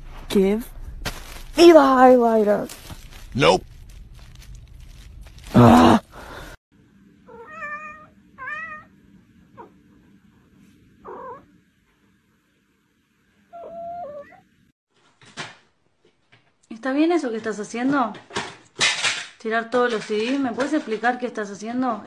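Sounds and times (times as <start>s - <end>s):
cat meowing: 7.3s - 8.9s, 11.0s - 11.5s, 13.6s - 14.5s.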